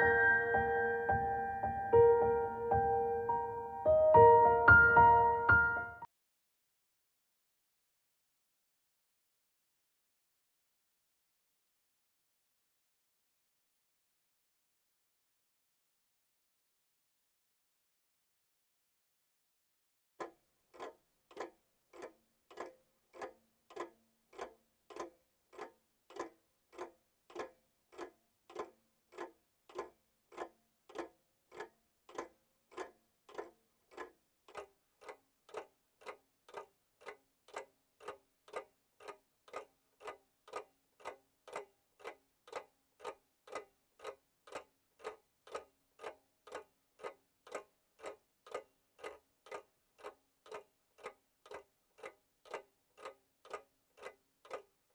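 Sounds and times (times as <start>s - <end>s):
clock ticking: 20.2s - 54.8s.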